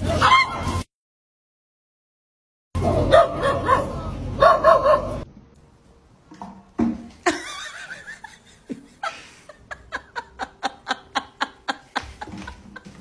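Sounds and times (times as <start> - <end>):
person laughing in rapid bursts: 7.3 - 13.0.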